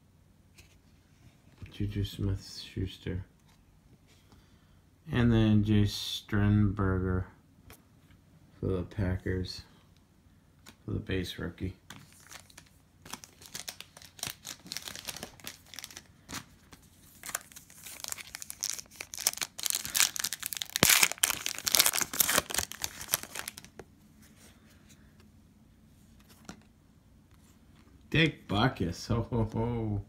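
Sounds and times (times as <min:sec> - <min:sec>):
foil wrapper tearing and crinkling: 0:12.2 - 0:16.5, 0:17.2 - 0:23.7.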